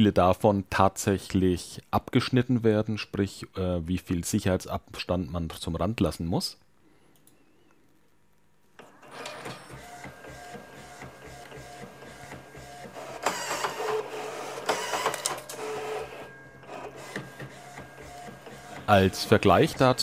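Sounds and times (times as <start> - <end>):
printer clicks: 8.8 - 19.9
printer motors whirring: 8.8 - 20.0.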